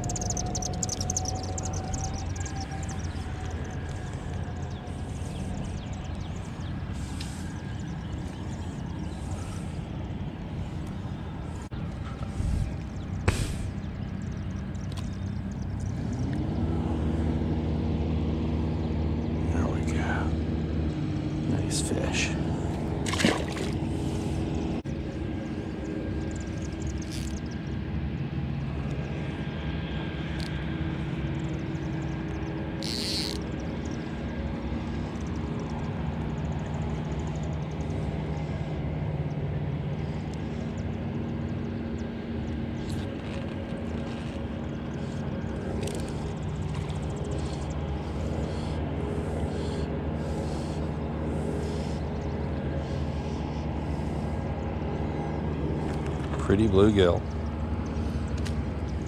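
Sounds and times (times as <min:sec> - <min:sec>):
low engine drone: 0:00.0 - 0:59.0.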